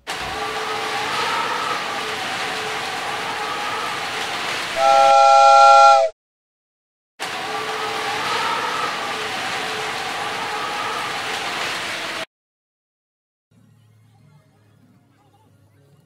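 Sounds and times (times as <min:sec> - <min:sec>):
loud whistle-like chord: 0:04.8 - 0:06.1.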